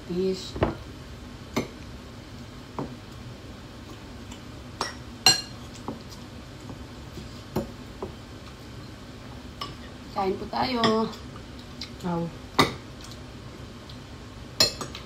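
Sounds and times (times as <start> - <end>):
cutlery clinking on ceramic bowls: 4.8 - 5.6, 14.6 - 15.0.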